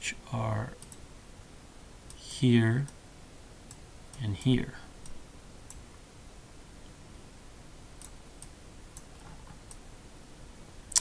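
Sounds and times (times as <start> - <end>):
room hiss: 0.0 - 11.0
computer mouse clicks: 0.8 - 1.0.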